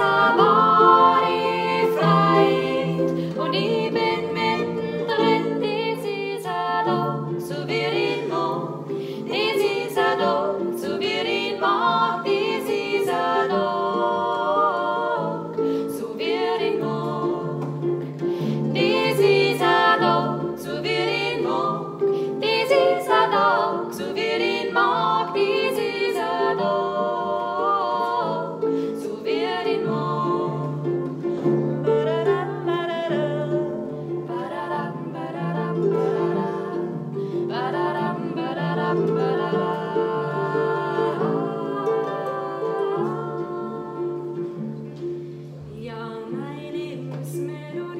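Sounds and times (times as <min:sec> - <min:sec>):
plucked harp: 0:00.0 - 0:47.9
women singing in harmony: 0:00.0 - 0:47.9.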